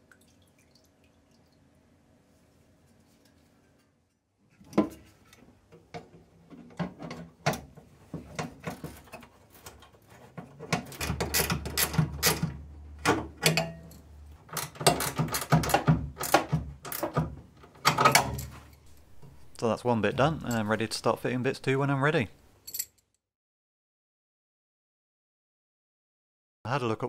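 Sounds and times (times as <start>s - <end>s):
metallic clicks and rattles: 10.6s - 19.4s.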